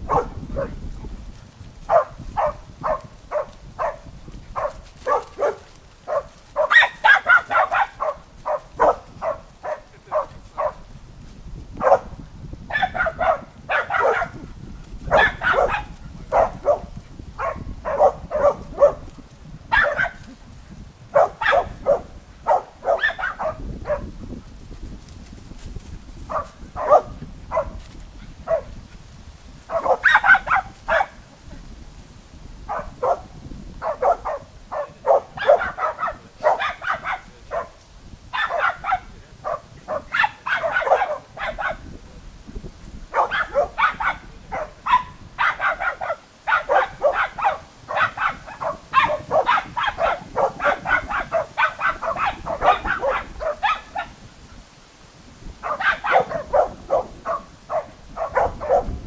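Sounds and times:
dogs barking: 0:00.0 - 0:00.8, 0:01.8 - 0:10.8, 0:11.8 - 0:14.4, 0:15.1 - 0:19.1, 0:19.7 - 0:20.3, 0:21.1 - 0:24.1, 0:26.3 - 0:27.8, 0:28.4 - 0:28.8, 0:29.7 - 0:31.3, 0:32.7 - 0:41.9, 0:43.1 - 0:54.2, 0:55.6 - 0:59.0.

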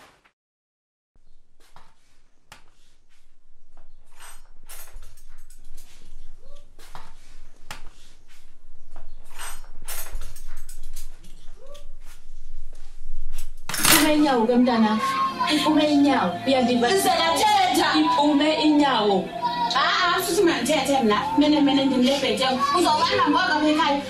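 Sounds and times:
kitchenware clinking and clattering: 0:04.1 - 0:07.0, 0:09.2 - 0:11.6, 0:13.7 - 0:14.3.

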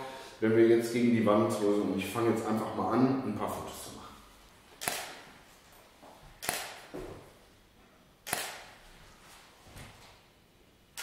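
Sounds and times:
camera shutter clicks: 0:04.8 - 0:05.2, 0:06.4 - 0:06.9, 0:08.2 - 0:08.8
studio flash firing: 0:04.8 - 0:05.3, 0:06.4 - 0:06.9, 0:08.2 - 0:08.8.

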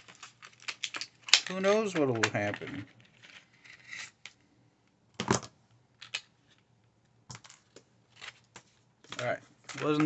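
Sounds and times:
packaging clicks and rustles: 0:00.0 - 0:03.6, 0:07.3 - 0:10.0.

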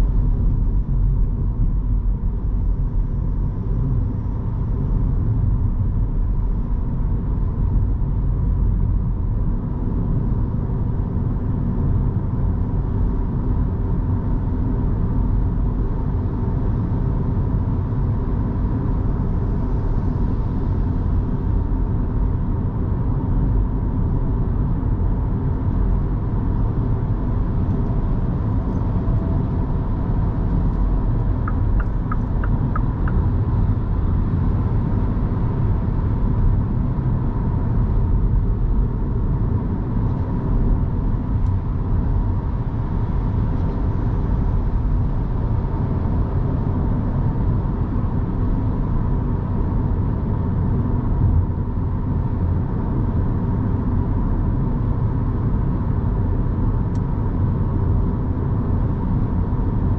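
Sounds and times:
faint constant tone: 0:27.2 - 0:37.0
tyre and road rumble: 0:28.2 - 0:34.4.

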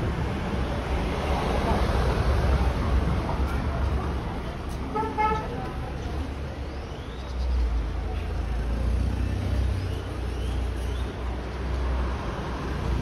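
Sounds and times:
street traffic rumble: 0:00.0 - 0:13.0
vehicle horn toot: 0:04.9 - 0:05.6.

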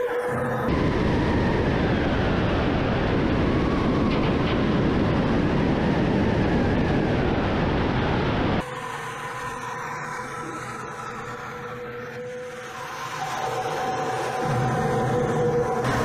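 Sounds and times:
airflow and jet engine rushing: 0:00.7 - 0:10.8.

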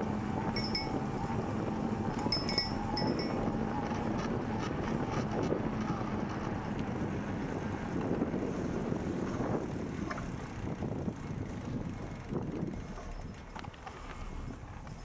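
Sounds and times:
bicycle tyres rolling: 0:00.0 - 0:15.0
wind buffeting microphone: 0:00.0 - 0:15.0
light clicks and rattles: 0:12.8 - 0:15.0.

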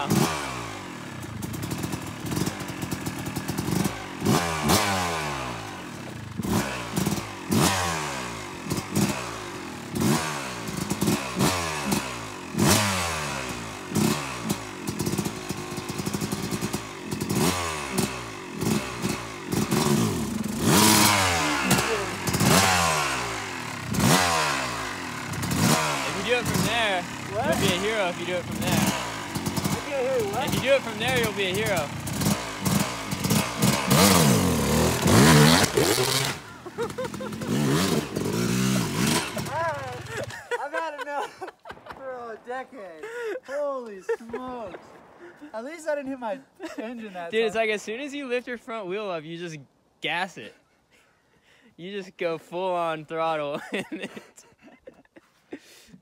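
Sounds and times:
dirt bike engine revving: 0:00.0 - 0:41.4.

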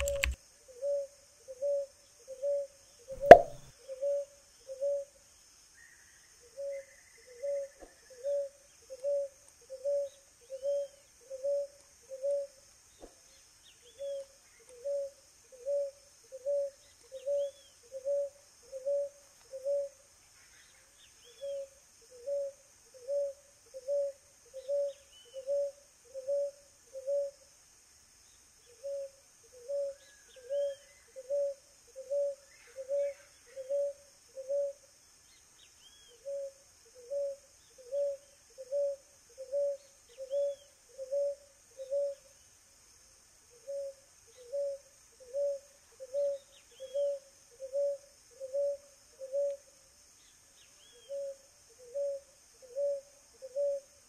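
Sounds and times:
dove cooing: 0:00.0 - 0:05.1, 0:07.4 - 0:12.5, 0:14.8 - 0:19.9, 0:21.4 - 0:27.4, 0:28.8 - 0:34.8, 0:36.2 - 0:42.2, 0:43.6 - 0:49.6, 0:51.1 - 0:53.9
faint bird chirps: 0:00.0 - 0:27.5, 0:28.2 - 0:42.6, 0:43.4 - 0:54.0.

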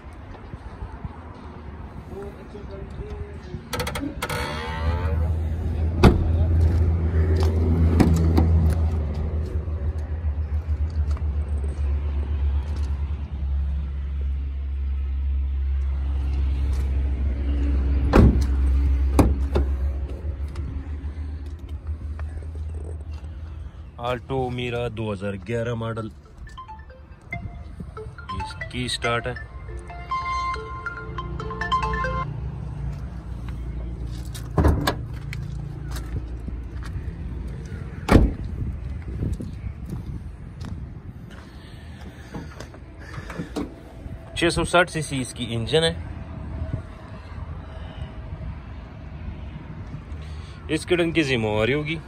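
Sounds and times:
car door clunks: 0:38.1 - 0:38.4.

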